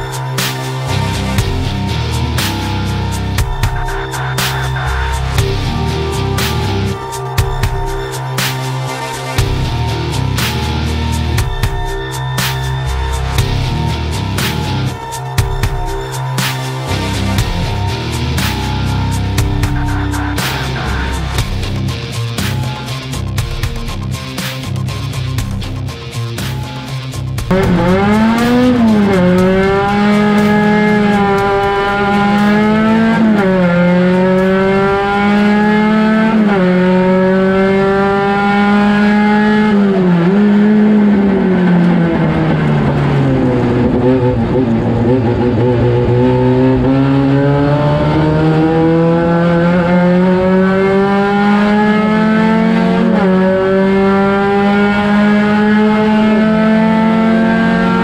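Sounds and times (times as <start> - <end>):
race car engine revving: 27.5 - 58.0.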